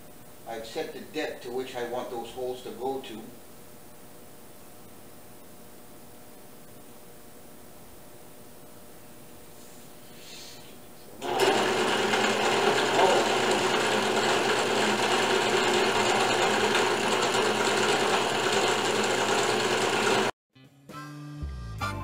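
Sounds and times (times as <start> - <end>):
drill press motor whirring: 11.2 - 20.3.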